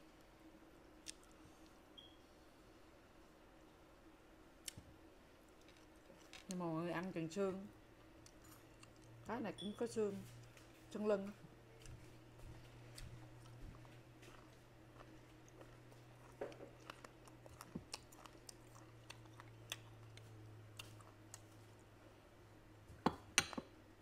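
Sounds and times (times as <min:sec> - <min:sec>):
faint low hum: 0:00.0 - 0:24.0
close chewing: 0:11.8 - 0:21.9.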